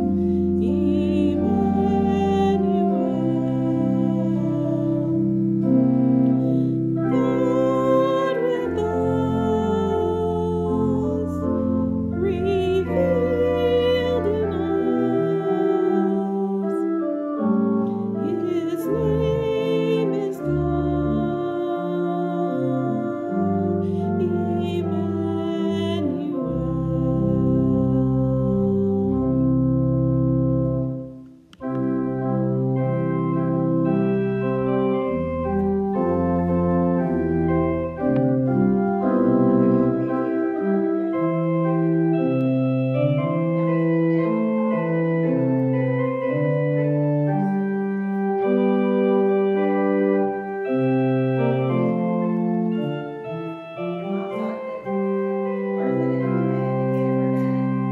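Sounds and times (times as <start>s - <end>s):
organ playing sustained chords: 0.0s - 57.9s.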